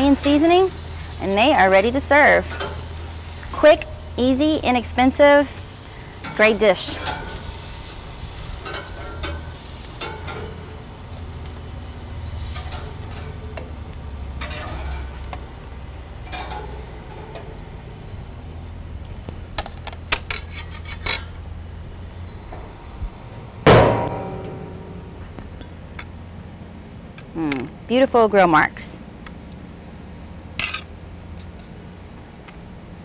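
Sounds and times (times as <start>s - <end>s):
metal spatula scraping grill grates: 0.0s - 13.7s, 14.3s - 17.6s, 20.3s - 21.5s
faint grill sizzle: 0.0s - 33.0s.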